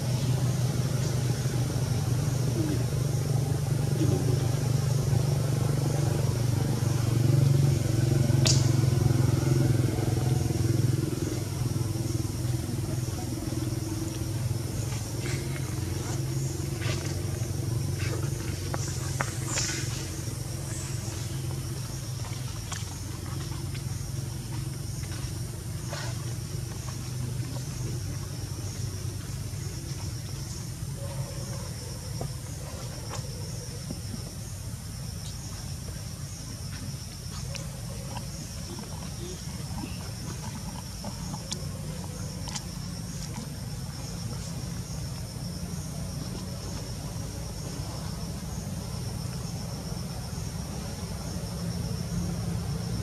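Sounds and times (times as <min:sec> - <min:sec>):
engine humming: 0:00.0 - 0:53.0
insect drone: 0:00.0 - 0:53.0.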